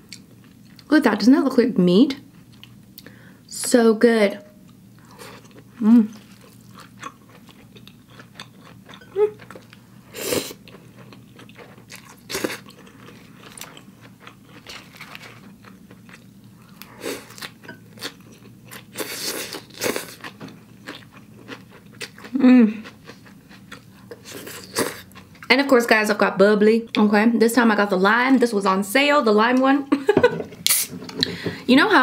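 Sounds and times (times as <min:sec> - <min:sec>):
chewing and crunching food: 0:04.6 - 0:25.5.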